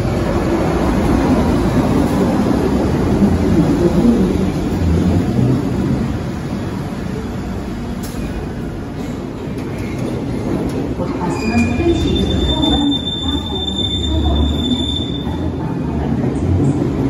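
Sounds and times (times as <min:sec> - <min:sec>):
train wheels and motors rumbling: 0:00.0 - 0:17.0
high-pitched brake squeals: 0:11.2 - 0:15.4.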